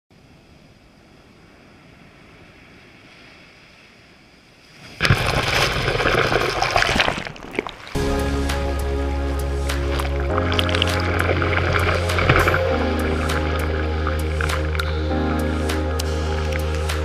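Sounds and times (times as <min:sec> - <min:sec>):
music with steady bass line: 0:08.0 - 0:17.0
sea waves washing on sand: 0:09.3 - 0:17.0.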